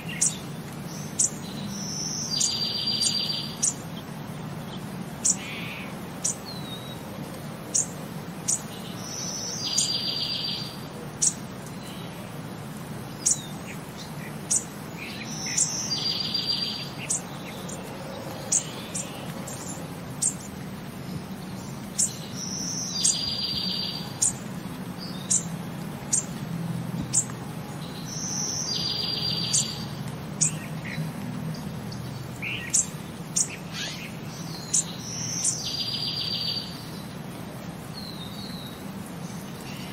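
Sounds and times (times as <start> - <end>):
high bird chirps: 27.9 - 31.0.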